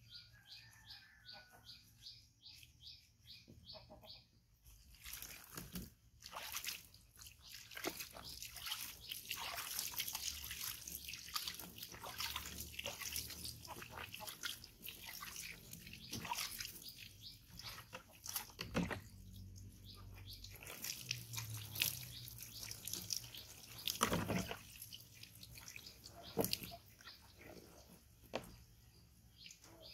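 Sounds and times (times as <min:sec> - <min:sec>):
small wet crackles: 0:04.7 - 0:29.9
water splashing and dripping: 0:04.8 - 0:29.9
loud water splashes: 0:05.1 - 0:16.7.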